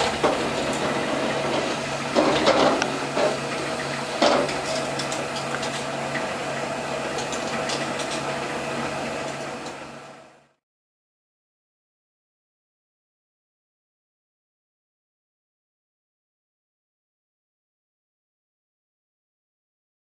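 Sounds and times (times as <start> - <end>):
labelling machine humming: 0.0 - 10.6.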